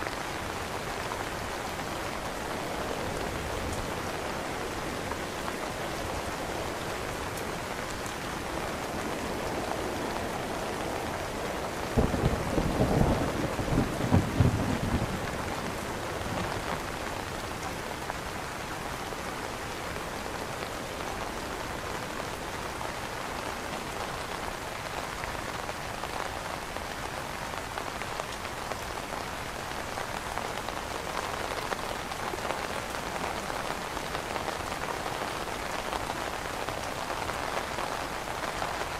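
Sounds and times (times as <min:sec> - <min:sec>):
rain on an umbrella: 0:00.0 - 0:38.9
thunder rumble: 0:11.9 - 0:16.6.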